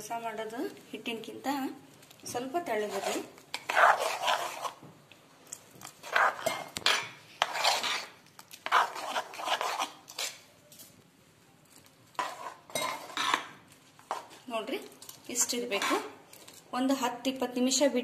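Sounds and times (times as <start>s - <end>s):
spoon scraping batter in metal bowl: 2.5s - 4.9s, 5.8s - 10.5s, 11.8s - 16.6s.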